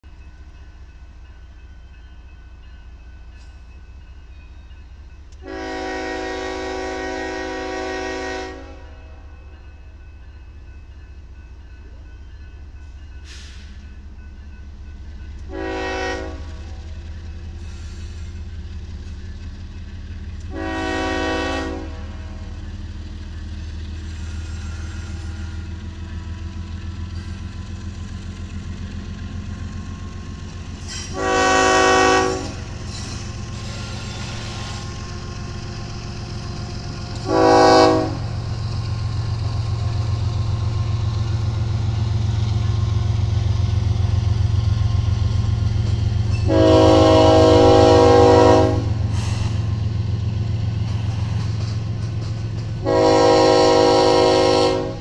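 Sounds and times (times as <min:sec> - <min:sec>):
train engine and wheels rumbling: 0:00.0 - 0:55.0
train air horn blasts: 0:05.4 - 0:09.2, 0:15.5 - 0:16.8, 0:20.5 - 0:22.5, 0:30.8 - 0:35.1, 0:37.0 - 0:38.6, 0:45.6 - 0:49.8, 0:52.8 - 0:55.0.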